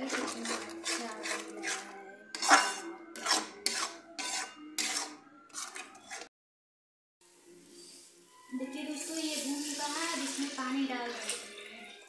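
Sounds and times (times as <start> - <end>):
metal spatula scraping a pan: 0.0 - 6.3.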